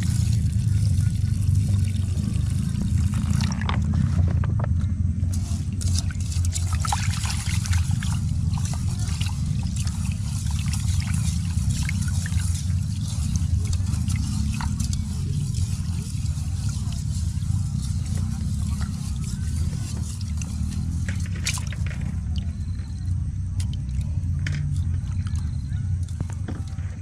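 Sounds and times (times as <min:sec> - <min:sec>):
steady low rumble: 0:00.0 - 0:27.0
hand swishing rice in water: 0:05.3 - 0:22.2.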